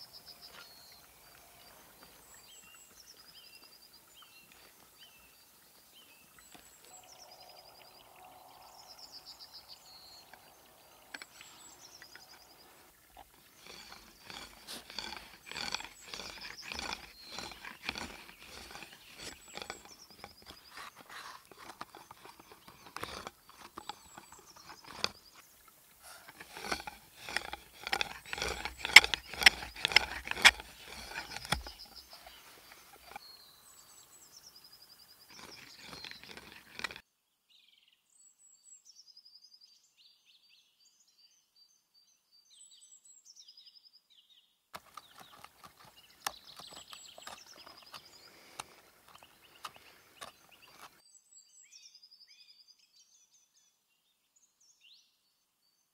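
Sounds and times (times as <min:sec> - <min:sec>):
small bird chirping: 0:00.0 - 0:37.0, 0:44.8 - 0:53.7
hand drill scraping wood: 0:09.5 - 0:33.4, 0:35.3 - 0:37.0, 0:44.8 - 0:51.0
tool clicks on wood: 0:26.3 - 0:32.0.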